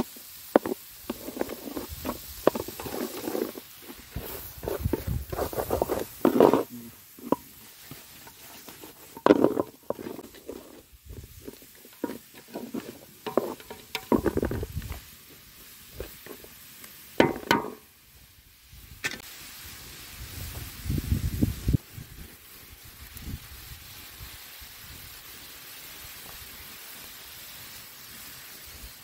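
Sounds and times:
wooden spatula scraping metal pan: 0.5s - 14.8s.

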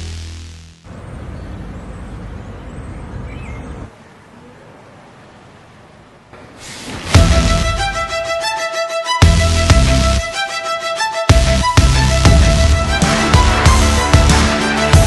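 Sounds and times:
loud background music: 7.1s - 15.0s.

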